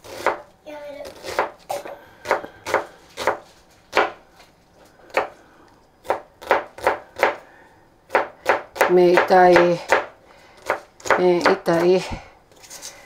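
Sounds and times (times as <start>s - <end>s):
knife chopping on wooden board: 0.0s - 0.5s, 1.1s - 4.2s, 5.1s - 5.4s, 6.0s - 7.4s, 8.1s - 12.0s.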